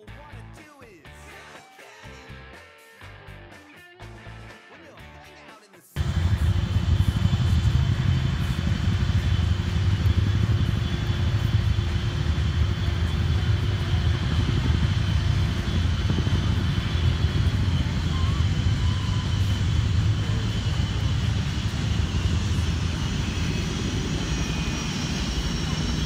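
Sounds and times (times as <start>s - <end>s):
jet engine high whine: 6.0s - 26.0s
jet engines rumbling: 6.0s - 26.0s.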